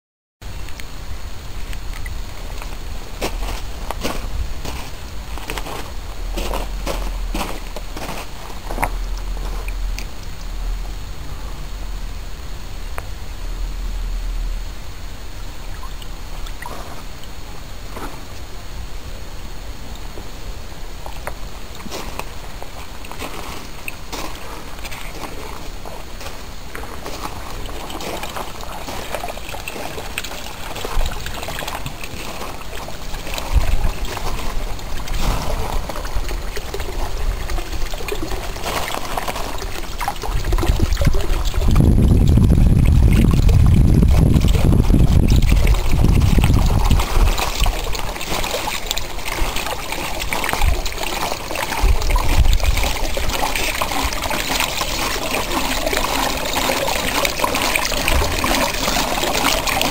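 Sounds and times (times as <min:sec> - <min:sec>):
low rumble: 0:01.1 - 0:16.6, 0:40.2 - 0:47.3
water pouring into water wheel: 0:02.0 - 0:10.4, 0:21.0 - 0:59.9.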